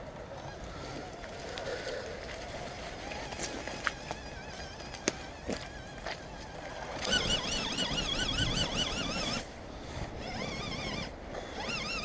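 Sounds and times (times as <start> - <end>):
electric motor whining: 3.0 - 12.0.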